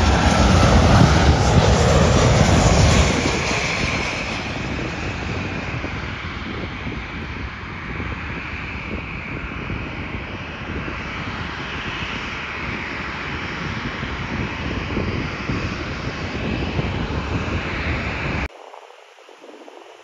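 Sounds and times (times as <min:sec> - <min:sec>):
jet engines roaring: 0:00.0 - 0:18.6
faint hiss: 0:18.5 - 0:20.0.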